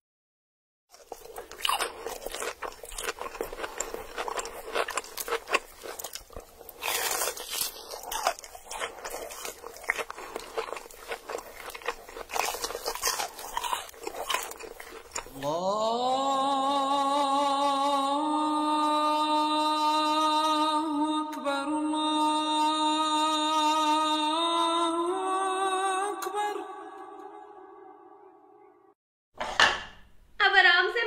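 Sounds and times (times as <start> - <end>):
crunching and chewing food: 0.9 - 15.7, 22.0 - 24.6.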